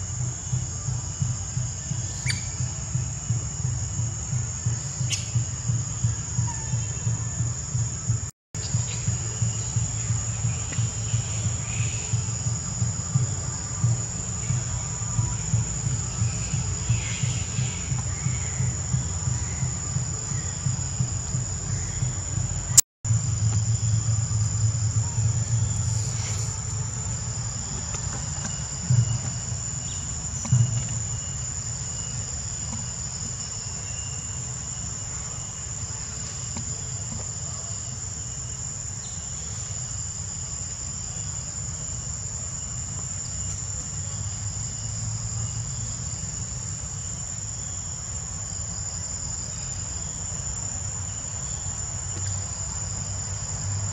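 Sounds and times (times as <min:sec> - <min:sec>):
insects trilling: 0:00.0 - 0:53.9
low rumble: 0:00.9 - 0:29.5.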